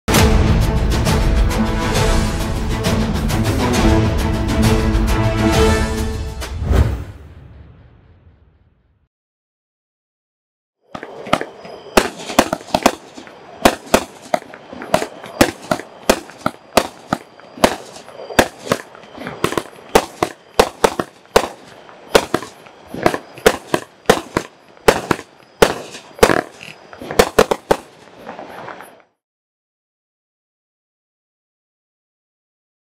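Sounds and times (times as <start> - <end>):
fireworks shots firing: 10.9 - 28.0.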